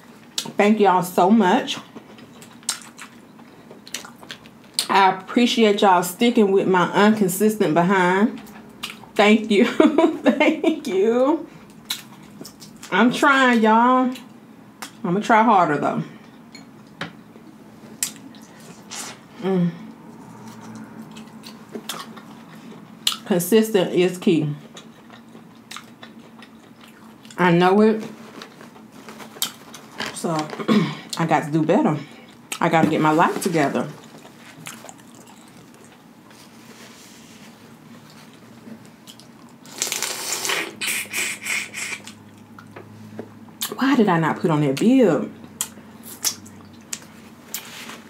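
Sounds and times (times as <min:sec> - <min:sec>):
crunching wet mouth noises: 0:02.2 - 0:04.9, 0:39.0 - 0:42.8, 0:45.4 - 0:47.7
person humming: 0:19.4 - 0:19.9
wet slurp: 0:39.8 - 0:42.2.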